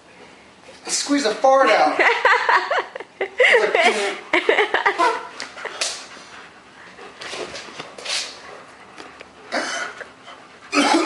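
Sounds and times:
stifled laughter: 0:02.1 - 0:05.8.

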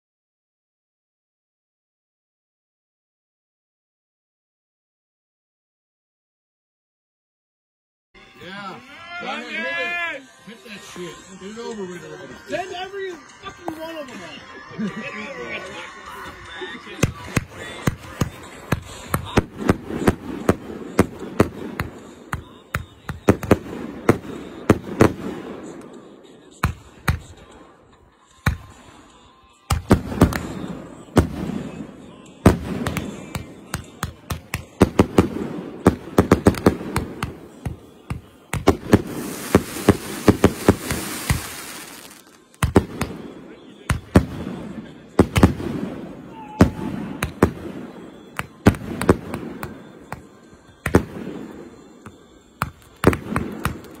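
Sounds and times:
fireworks exploding: 0:16.3 - 0:27.6, 0:29.7 - 0:54.0.

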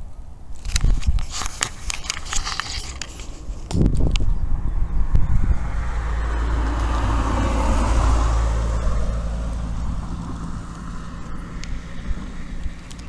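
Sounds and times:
vehicle passing by: 0:04.4 - 0:13.0.

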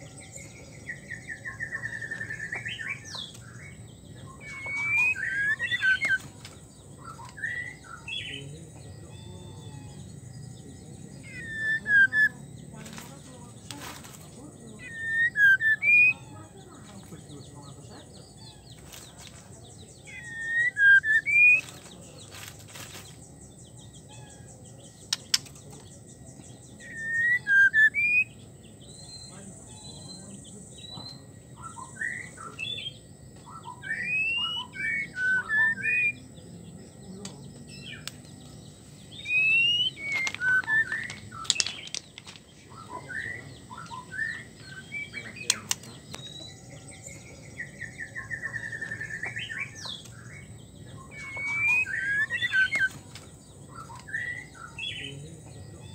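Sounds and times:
bird whistling calls: 0:00.9 - 0:10.1, 0:11.0 - 0:12.5, 0:14.7 - 0:16.6, 0:20.0 - 0:21.8, 0:26.8 - 0:36.3, 0:39.1 - 0:55.2.

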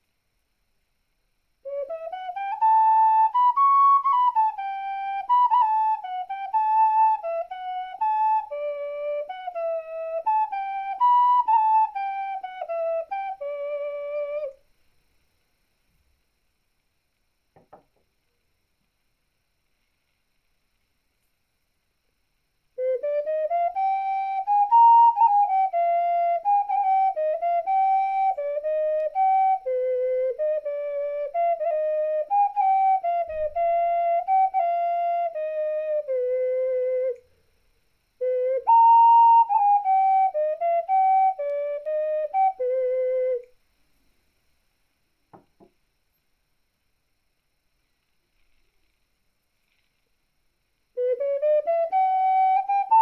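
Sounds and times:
ocarina playing slow melody: 0:01.6 - 0:14.6, 0:22.8 - 0:37.3, 0:38.2 - 0:43.5, 0:51.0 - 0:53.0
faint click: 0:37.1 - 0:37.4, 0:43.4 - 0:43.6.

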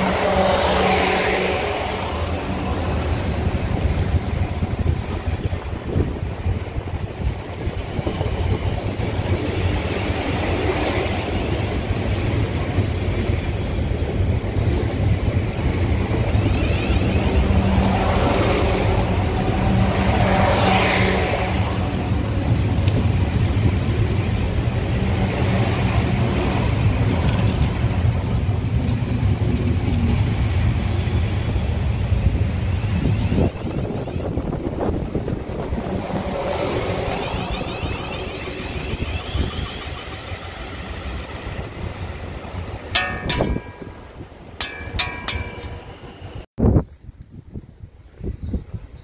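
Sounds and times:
train wheels rumbling on track: 0:00.0 - 0:48.9
rising and falling whine: 0:33.6 - 0:42.0
humming tone: 0:35.1 - 0:41.7.

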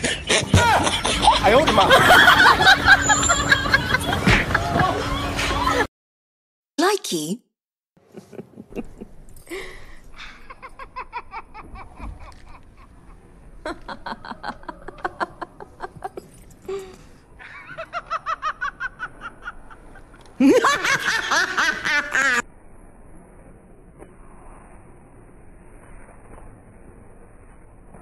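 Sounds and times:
person laughing: 0:08.1 - 0:12.9.

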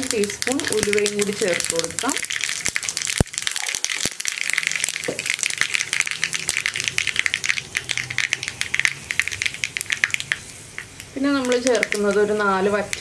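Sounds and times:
oil sizzling: 0:00.0 - 0:13.0
seeds popping and crackling: 0:00.0 - 0:13.0.

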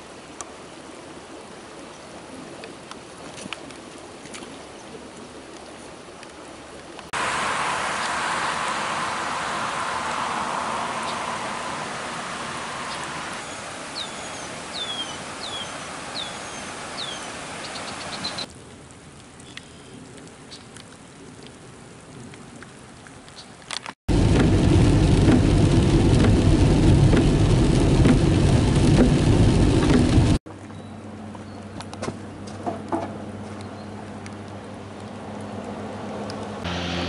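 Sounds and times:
water drips: 0:02.6 - 0:30.8, 0:33.5 - 0:36.6
rain hiss: 0:06.2 - 0:30.4
car tyres on wet road: 0:06.3 - 0:30.4, 0:31.8 - 0:37.0
bird whistling: 0:12.9 - 0:18.5.

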